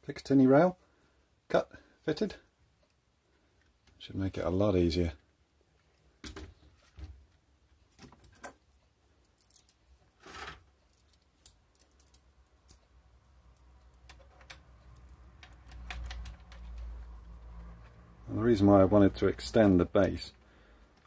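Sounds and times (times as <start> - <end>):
metal scrape: 10.2 - 10.6
faint metal clicks and taps: 10.8 - 18.0.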